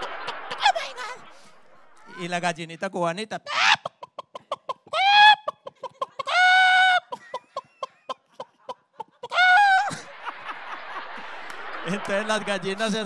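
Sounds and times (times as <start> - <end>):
people laughing: 0.0 - 2.8, 3.5 - 13.0
man clucking like a hen: 3.5 - 9.4.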